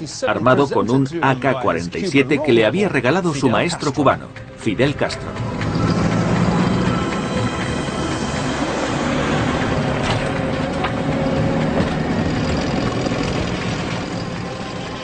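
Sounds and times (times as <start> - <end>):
traffic driving past: 5.0 - 15.0.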